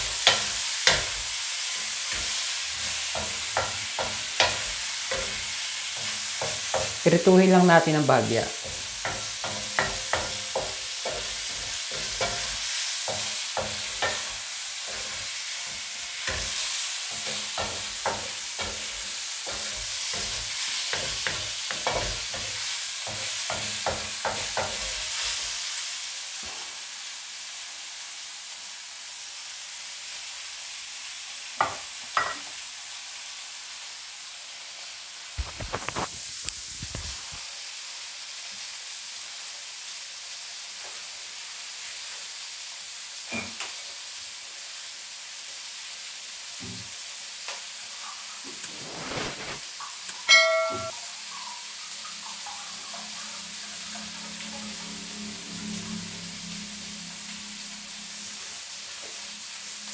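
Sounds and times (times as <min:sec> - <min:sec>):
wooden spatula scraping a wok: 0:00.0 - 0:07.2, 0:08.5 - 0:25.6, 0:47.9 - 0:49.7
food sizzling in hot oil: 0:00.0 - 0:59.9.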